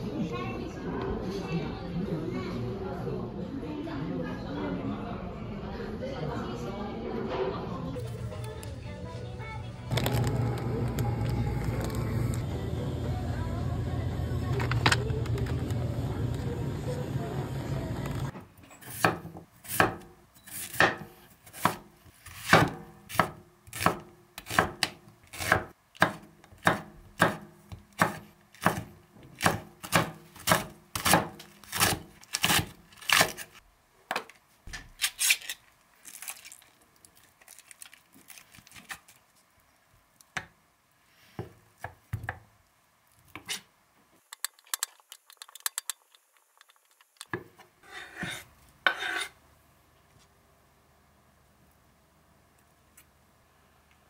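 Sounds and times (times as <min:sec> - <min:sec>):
knife chopping on wooden board: 0:18.9 - 0:33.4.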